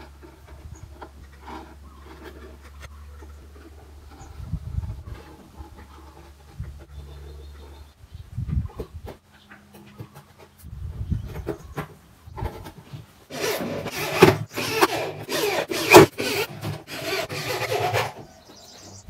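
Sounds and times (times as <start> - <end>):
electric drill driving screws: 13.3 - 18.2.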